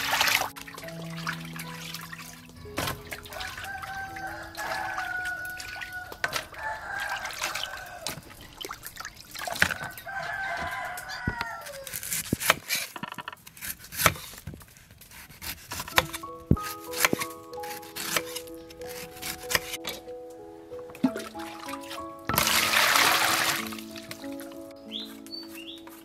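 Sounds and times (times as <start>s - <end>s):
rooster crowing: 3.3s - 8.3s, 9.5s - 12.0s.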